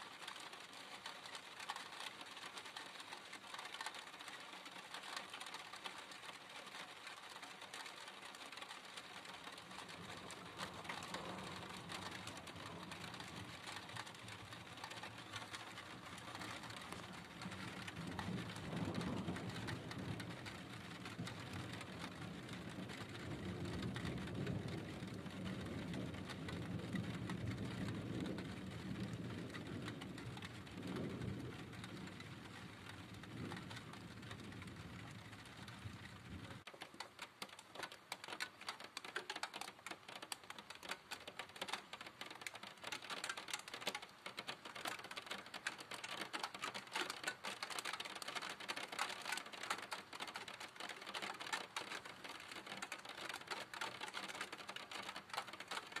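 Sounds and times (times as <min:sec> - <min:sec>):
raindrops on a hard surface: 0:00.0 - 0:56.0
low rumble of thunder: 0:09.0 - 0:36.6.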